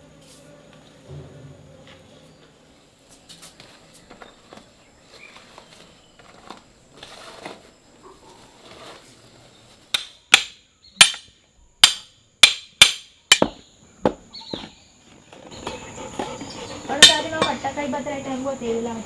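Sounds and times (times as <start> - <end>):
sharp knocks of wood on iron: 9.9 - 14.7.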